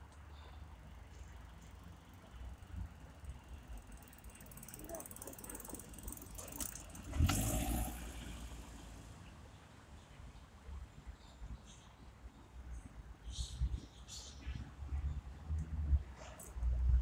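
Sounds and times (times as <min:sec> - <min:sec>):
low traffic rumble: 0:00.0 - 0:17.0
vehicle passing close by: 0:06.9 - 0:09.2.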